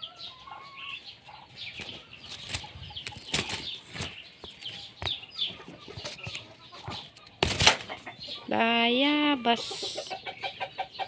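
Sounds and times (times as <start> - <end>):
poultry rustling and flapping: 1.7 - 8.2.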